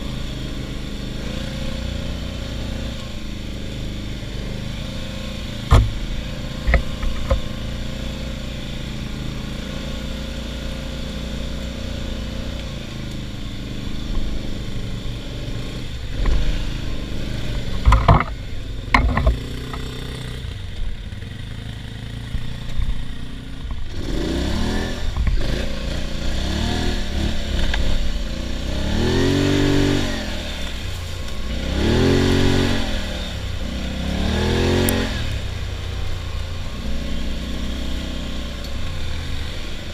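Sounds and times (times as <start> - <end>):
atv engine revving: 0.0 - 39.9
sharp knocks: 5.7 - 7.5.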